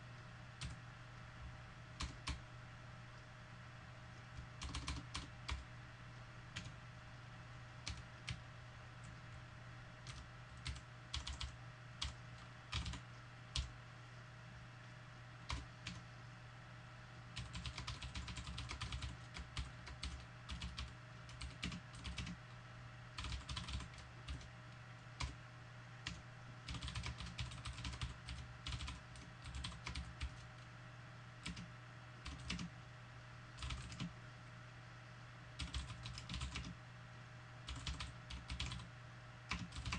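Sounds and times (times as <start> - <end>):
steady low hum: 0.0 - 39.9
computer keyboard typing: 0.6 - 0.8, 2.0 - 2.4, 4.4 - 5.6, 6.6 - 6.8, 7.8 - 8.4, 10.0 - 13.7, 15.5 - 16.1, 17.3 - 22.4, 23.2 - 24.5, 26.0 - 30.7, 31.4 - 32.7, 33.6 - 34.1, 35.6 - 36.8, 37.7 - 38.9, 39.5 - 39.9.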